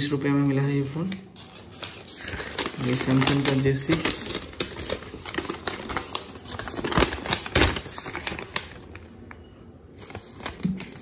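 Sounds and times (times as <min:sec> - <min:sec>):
paper crackling and rustling: 0:00.2 - 0:11.0.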